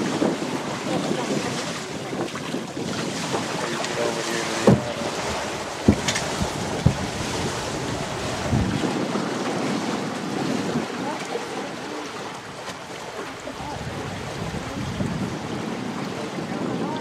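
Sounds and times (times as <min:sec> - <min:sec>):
water washing against hulls: 0:00.0 - 0:17.0
wind buffeting microphone: 0:00.0 - 0:17.0
short knocks: 0:03.3 - 0:08.7.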